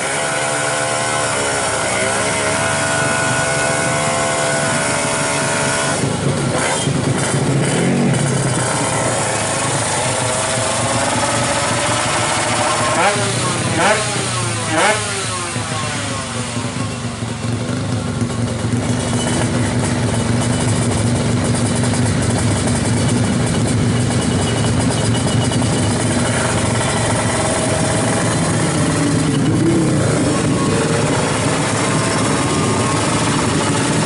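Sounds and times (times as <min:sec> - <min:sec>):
motorcycle engine idling: 0:00.2 - 0:34.0.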